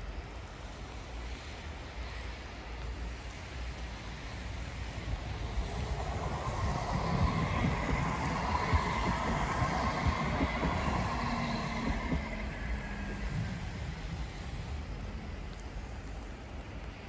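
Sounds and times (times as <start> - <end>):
wind noise on microphone: 3.4 - 17.0
tram motor whine: 4.8 - 16.7.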